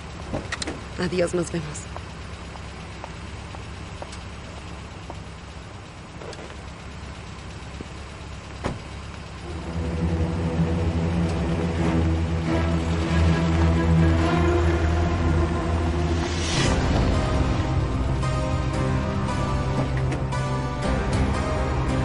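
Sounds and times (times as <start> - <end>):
car engine idling: 0.0 - 22.0
car door shutting: 8.6 - 8.8, 19.7 - 20.4
background music: 9.4 - 22.0.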